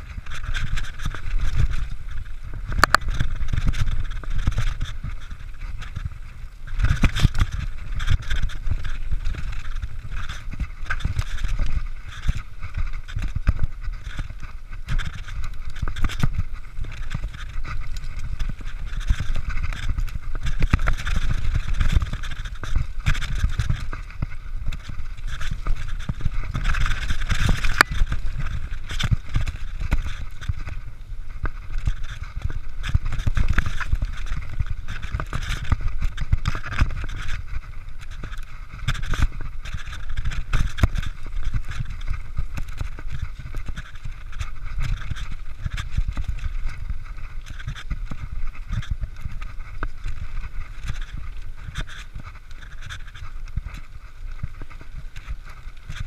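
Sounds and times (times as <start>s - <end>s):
bike rattling and knocking: 0.0s - 56.0s
tyres on dirt: 0.0s - 56.0s
wind rumbling on microphone: 0.0s - 56.0s.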